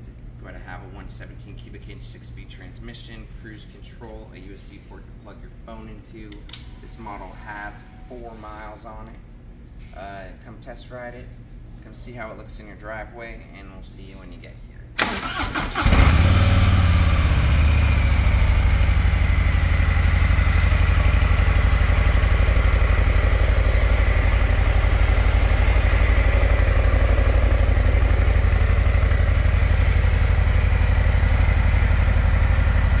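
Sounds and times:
motorcycle engine idling: 0:15.3 - 0:33.0.

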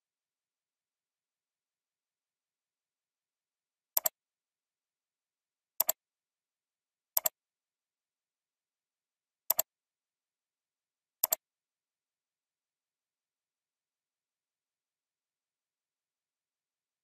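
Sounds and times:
computer mouse clicking: 0:04.0 - 0:04.2, 0:05.8 - 0:06.0, 0:07.2 - 0:07.4, 0:11.2 - 0:11.4.

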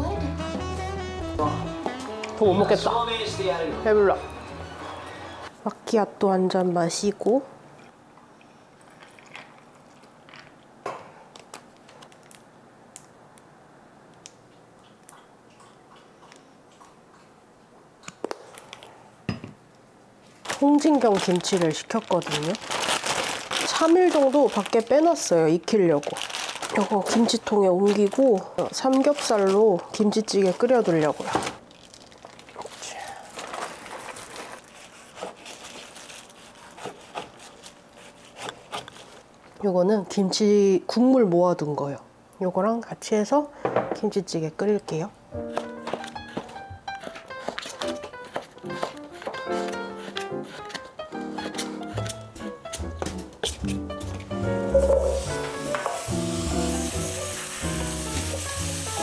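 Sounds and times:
plastic crinkling: 0:11.3 - 0:12.5, 0:20.2 - 0:39.6
ice cubes crackling in glass: 0:20.4 - 0:25.3, 0:25.9 - 0:29.7, 0:30.4 - 0:34.8.

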